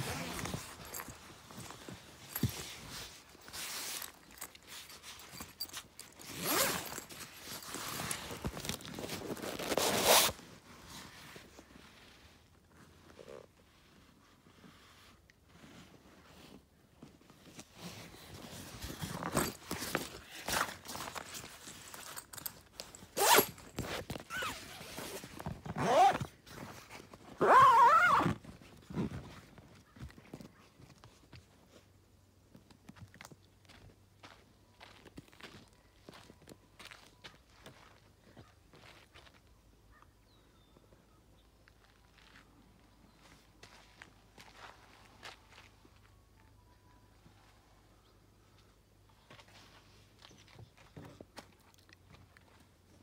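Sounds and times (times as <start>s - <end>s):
tent zipper rasping: 0.0s - 16.6s, 17.5s - 29.6s
handling rustle: 0.0s - 31.9s.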